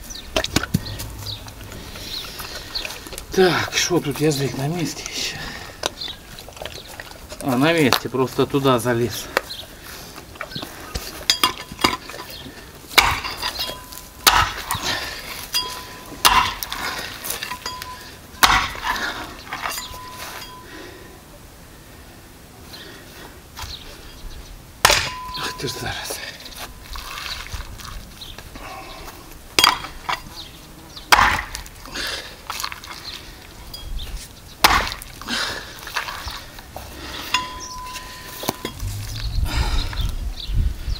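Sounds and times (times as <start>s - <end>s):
knocking and scraping: 0.4s - 3.3s
axe chopping on wooden block: 13.0s - 13.6s, 14.2s - 14.8s, 16.2s - 16.8s, 18.4s - 19.0s, 24.8s - 25.3s, 31.1s - 31.6s, 34.6s - 35.0s.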